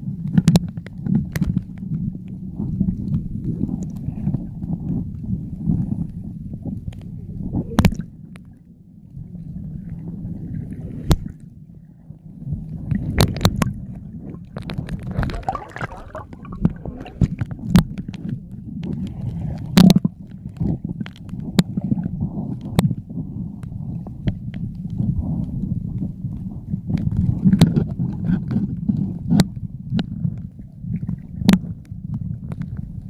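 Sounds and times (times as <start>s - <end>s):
underwater rumble of moving water: 0.0s - 33.0s
bubbly gurgle: 7.4s - 8.2s, 10.8s - 22.3s.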